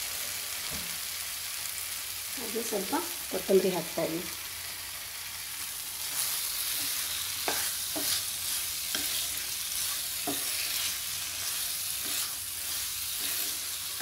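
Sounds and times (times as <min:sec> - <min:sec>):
curry sizzling in a pan: 0:00.0 - 0:14.0
wooden spatula stirring: 0:06.0 - 0:14.0.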